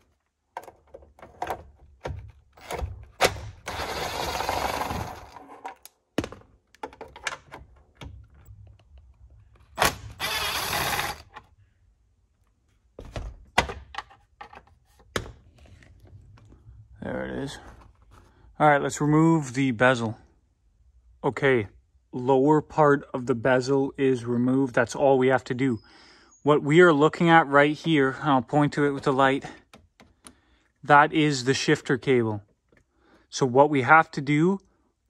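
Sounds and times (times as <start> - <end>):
handling knocks and clicks: 0.0 - 3.7, 5.3 - 10.0, 12.4 - 16.6
cordless driver running: 3.6 - 5.4, 9.8 - 11.4.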